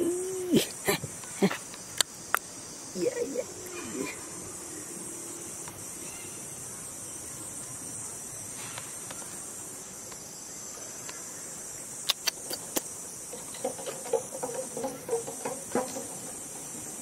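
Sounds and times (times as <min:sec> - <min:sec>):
insect chorus drone: 0:00.0 - 0:17.0
sharp clicks: 0:12.0 - 0:12.9.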